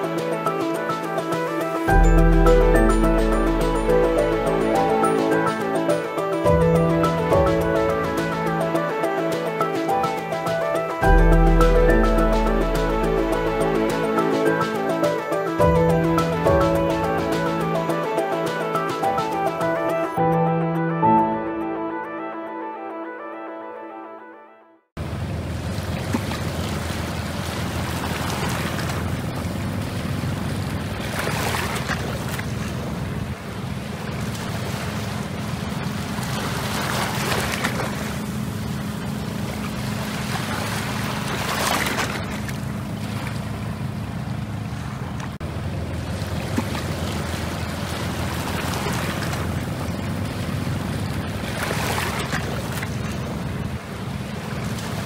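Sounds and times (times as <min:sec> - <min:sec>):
boat engine drone: 0:00.0 - 0:55.0
waves washing against rocks: 0:25.7 - 0:29.3, 0:29.9 - 0:33.2, 0:33.9 - 0:38.3, 0:39.9 - 0:43.4, 0:46.2 - 0:55.0.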